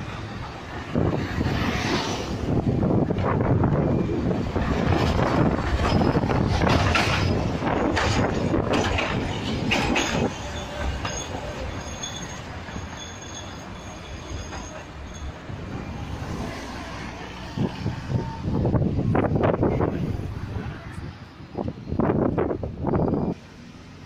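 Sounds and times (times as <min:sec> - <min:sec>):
tram running on straight track: 0:00.0 - 0:24.0
tram wheels clattering and squealing: 0:00.0 - 0:24.0
faint high squeal tones: 0:10.0 - 0:16.3.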